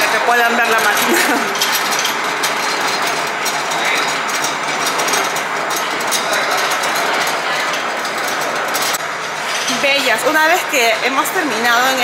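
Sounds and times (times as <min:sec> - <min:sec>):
oil press running: 0:00.0 - 0:09.5.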